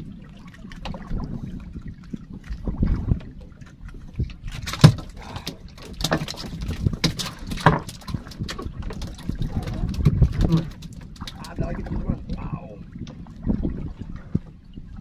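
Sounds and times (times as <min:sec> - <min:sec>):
water lapping at boat hull: 0:00.0 - 0:15.0
fishing gear knocking against boat: 0:04.3 - 0:11.9.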